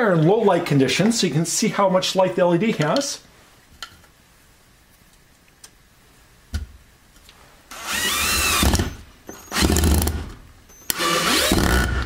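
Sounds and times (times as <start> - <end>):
cordless drill whirring: 7.7 - 10.2, 10.8 - 12.0.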